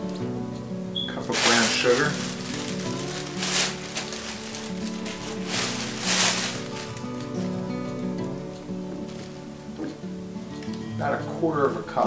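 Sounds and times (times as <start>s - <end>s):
background music with held notes: 0.0s - 12.0s
sugar poured into plastic bag: 1.0s - 8.3s.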